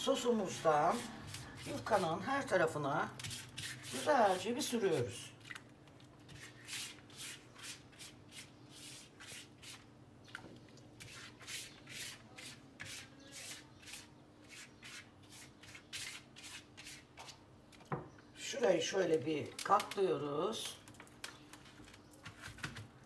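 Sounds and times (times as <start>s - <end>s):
pastry brush swishing on dough: 3.1s - 4.5s.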